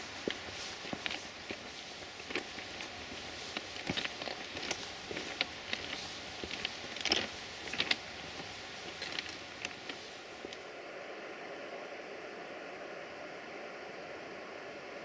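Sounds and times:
footsteps crunching on ballast: 0:00.0 - 0:10.6
steady hiss: 0:00.0 - 0:15.0.

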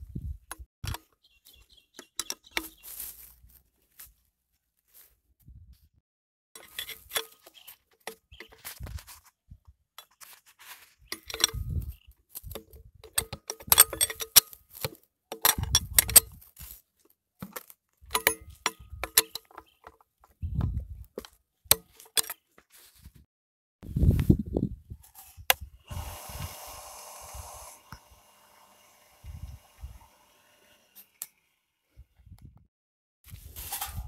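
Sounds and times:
metal tool clinking on hose clamp: 0:11.1 - 0:11.6, 0:13.0 - 0:14.6, 0:15.3 - 0:16.4, 0:18.1 - 0:19.6.

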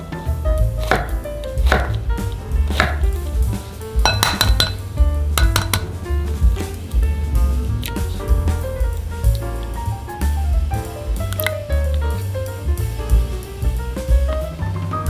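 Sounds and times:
background music: 0:00.0 - 0:15.0
egg tapped against glass bowl: 0:04.1 - 0:04.8.

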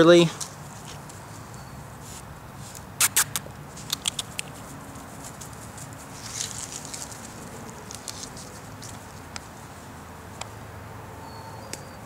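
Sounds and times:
rustle: 0:00.0 - 0:12.0
dog sniffing: 0:02.0 - 0:06.4.

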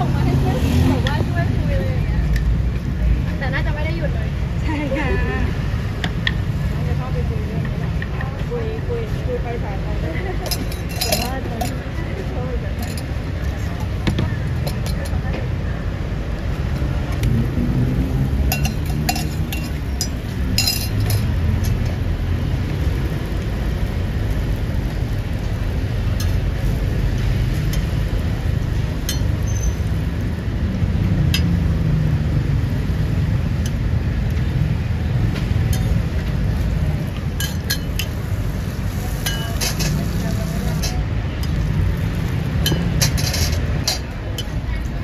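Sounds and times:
street traffic rumble: 0:00.0 - 0:45.0
spatulas on steel griddle: 0:10.0 - 0:15.5, 0:18.3 - 0:45.0
spoon clinking in steel cup: 0:10.4 - 0:11.8, 0:18.5 - 0:21.8, 0:39.2 - 0:40.0.

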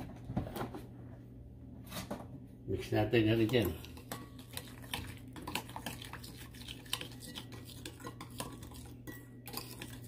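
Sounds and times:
metal spoon clinking in bowl: 0:06.9 - 0:10.0.

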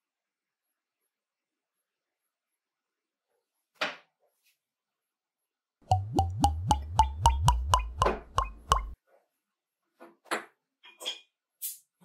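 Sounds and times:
cartoon bubble plops: 0:05.9 - 0:09.0
low hum: 0:05.9 - 0:09.0.

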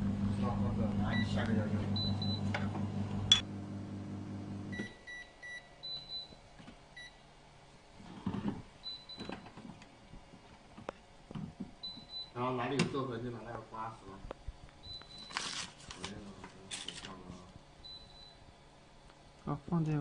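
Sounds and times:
low machine hum: 0:00.0 - 0:09.1.

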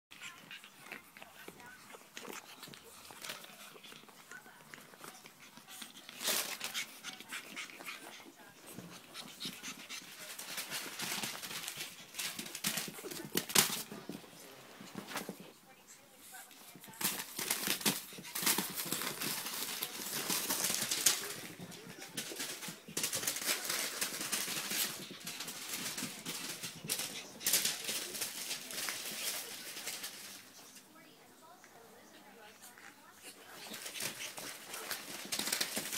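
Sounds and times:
paws clicking: 0:00.1 - 0:14.2, 0:16.4 - 0:30.8, 0:32.5 - 0:35.9
newspaper crinkling and rustling: 0:05.8 - 0:07.2, 0:09.7 - 0:14.2, 0:16.7 - 0:30.7, 0:33.5 - 0:35.9.

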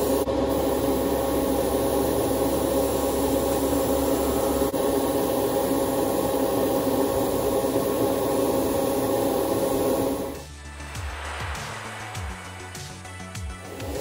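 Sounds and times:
airbrush spraying air: 0:00.0 - 0:14.0.

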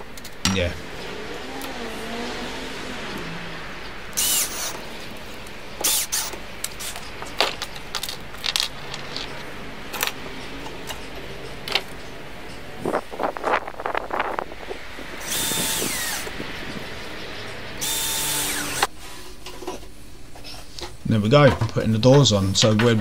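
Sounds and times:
cordless drill driving screw: 0:04.2 - 0:04.8, 0:05.8 - 0:07.0, 0:15.2 - 0:16.3, 0:17.8 - 0:18.9
tools clicking and knocking: 0:05.8 - 0:12.6.

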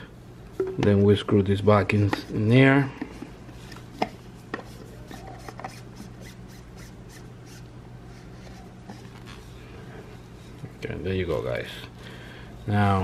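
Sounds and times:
steady low hum: 0:00.0 - 0:13.0
threads rubbing: 0:03.2 - 0:11.8.

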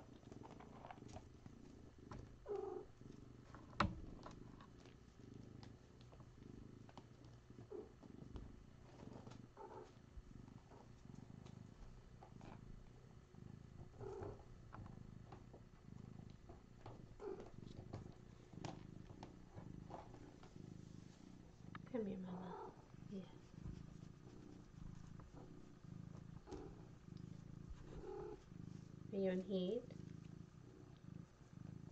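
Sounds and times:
cat purring: 0:00.0 - 0:31.9.

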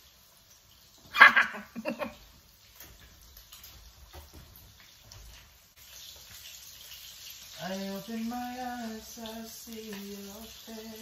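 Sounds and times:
faint steady hiss: 0:00.0 - 0:11.0
man laughing heartily: 0:01.2 - 0:02.2.

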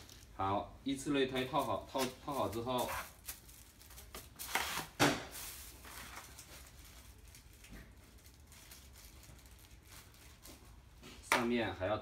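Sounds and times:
plastic rustles and clicks: 0:01.4 - 0:11.5.

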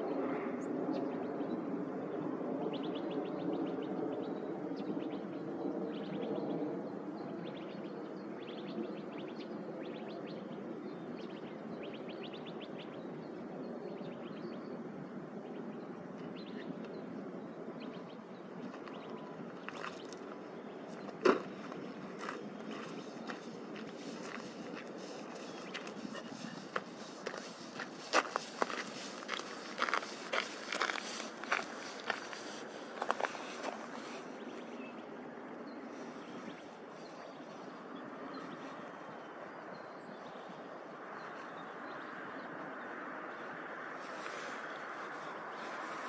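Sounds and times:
small birds chirping: 0:07.2 - 0:46.0.

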